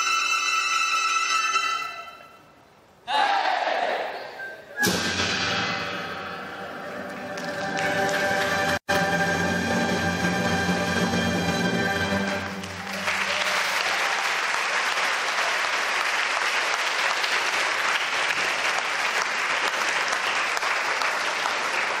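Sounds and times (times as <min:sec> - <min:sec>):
audience applauding: 0:06.8 - 0:11.1, 0:12.0 - 0:22.0.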